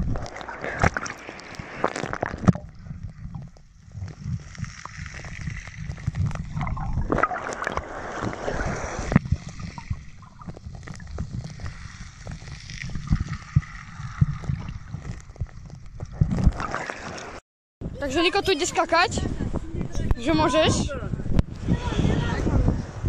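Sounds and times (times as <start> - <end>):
water gurgling: 0.0 - 17.4
muffled underwater rumble: 2.0 - 16.7
small underwater clicks: 9.1 - 17.4.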